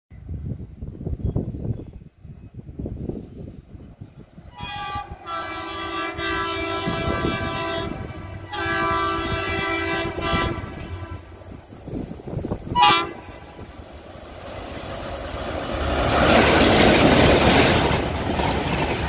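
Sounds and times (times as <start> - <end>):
locomotive horn blasts: 4.6 - 11.4, 12.7 - 13.6.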